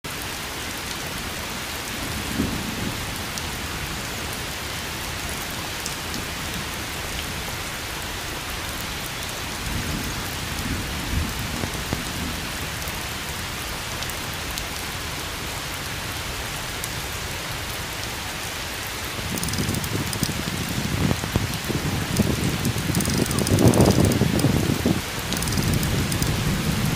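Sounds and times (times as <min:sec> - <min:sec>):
rain falling: 0:00.1 - 0:26.9
low thunder rumbles: 0:19.2 - 0:26.9
light ticks: 0:19.3 - 0:20.6, 0:21.2 - 0:24.6, 0:25.3 - 0:26.4.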